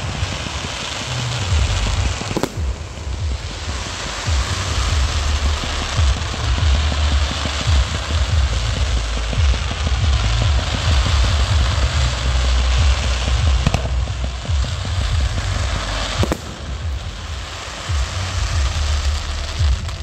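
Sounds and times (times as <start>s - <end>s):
fireworks crackling and hissing: 0.0s - 20.0s
fireworks launch thumps: 0.0s - 20.0s
sharp fireworks bangs: 0.0s - 20.0s.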